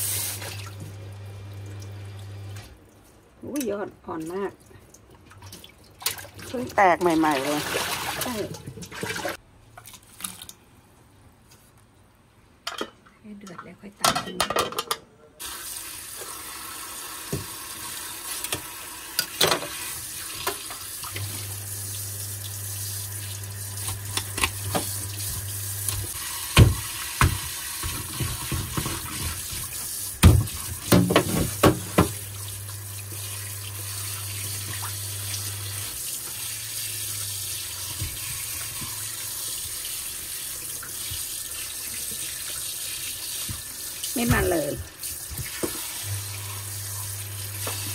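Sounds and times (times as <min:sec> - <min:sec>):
tap water running into sink: 0:15.4 - 0:47.9.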